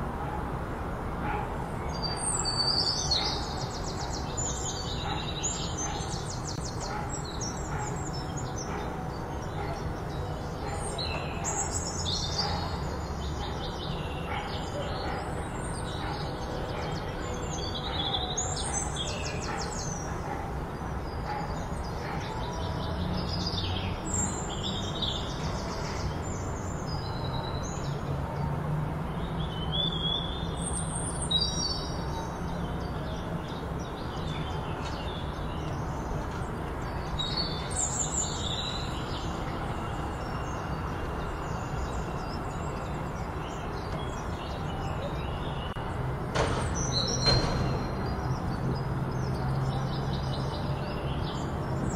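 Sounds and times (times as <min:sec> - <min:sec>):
small birds chirping: 0:01.3 - 0:28.1.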